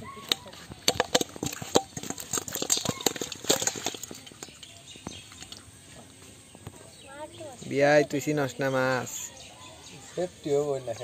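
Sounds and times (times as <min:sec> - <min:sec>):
fish flapping in metal bowl: 0:00.4 - 0:05.8.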